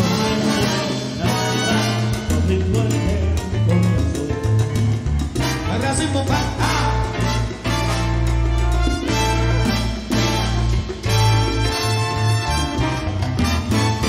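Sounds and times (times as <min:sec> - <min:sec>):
trumpets: 0:00.0 - 0:02.6, 0:05.4 - 0:14.0
maracas: 0:00.0 - 0:14.0
salsa band playing: 0:00.0 - 0:14.0.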